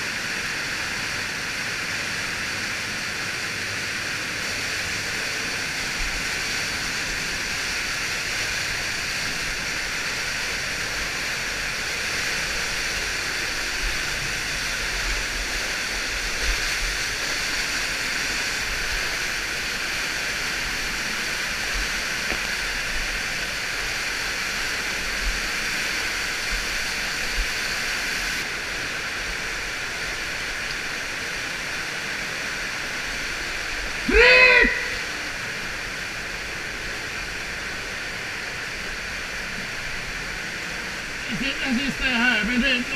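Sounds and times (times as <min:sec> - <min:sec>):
water rushing down a shaft: 0:00.0 - 0:42.9
person shouting: 0:34.0 - 0:35.1.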